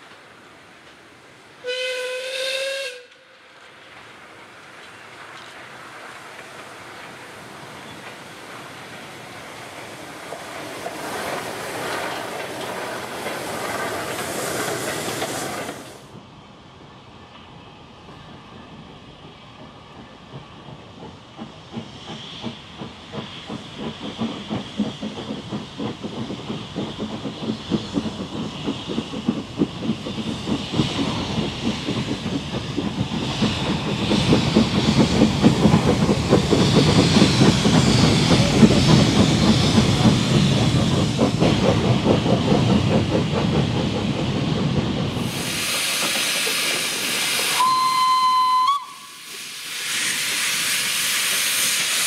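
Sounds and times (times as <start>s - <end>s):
steam hissing: 0.0s - 16.2s, 17.7s - 52.0s
steam locomotive exhaust beats: 0.0s - 52.0s
steam whistle blast: 1.6s - 3.2s, 47.5s - 49.3s.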